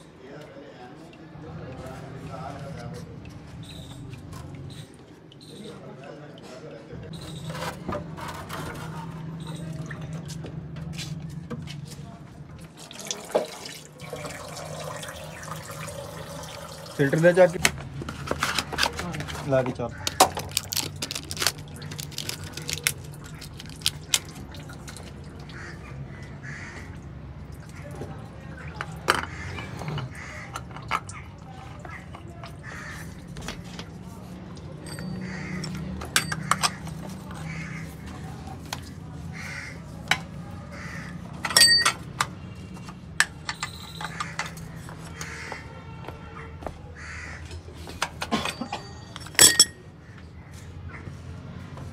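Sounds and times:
crow cawing: 25.5s - 27.0s, 29.3s - 30.6s, 32.6s - 33.2s, 35.2s - 35.8s, 36.4s - 38.3s, 39.3s - 39.9s, 40.7s - 41.3s, 44.1s - 45.7s, 46.4s - 47.5s
wrench clinking on bolts: 36.0s - 36.8s, 41.4s - 42.0s, 43.2s - 44.6s, 48.4s - 49.8s.

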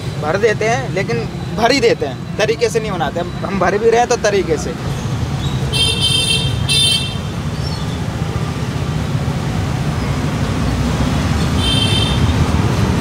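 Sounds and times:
street traffic rumble: 0.0s - 13.0s
car horn beeps: 5.7s - 7.3s, 11.6s - 12.3s.

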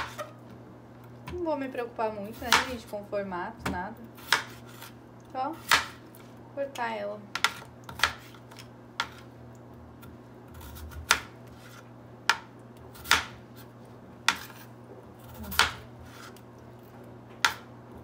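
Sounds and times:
knife chopping on wooden board: 2.4s - 2.8s, 3.6s - 4.9s, 5.6s - 6.0s, 7.3s - 8.4s, 10.5s - 13.4s, 14.2s - 16.3s, 17.4s - 17.7s.

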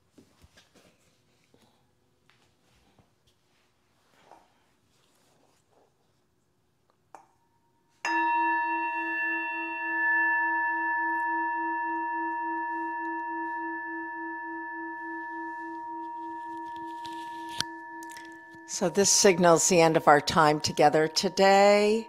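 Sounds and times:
singing bowl ringing: 8.0s - 22.0s
low wavering hum: 8.3s - 22.0s.

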